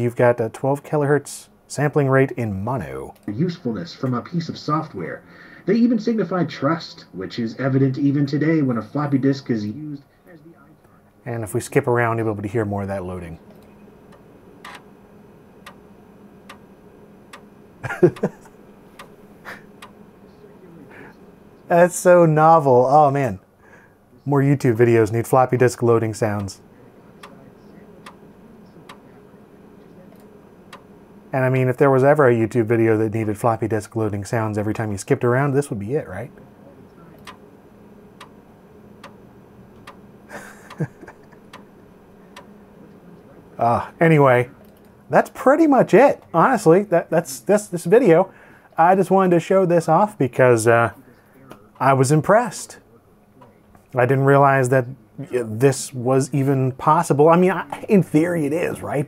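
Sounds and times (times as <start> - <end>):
floppy disk drive head clicking: 13.4 - 20.2, 26.2 - 31.3, 36.4 - 43.4.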